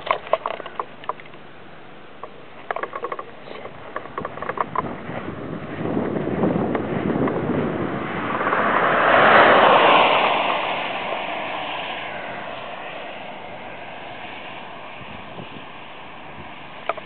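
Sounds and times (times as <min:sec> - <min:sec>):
car passing at high speed: 0:04.7 - 0:17.0.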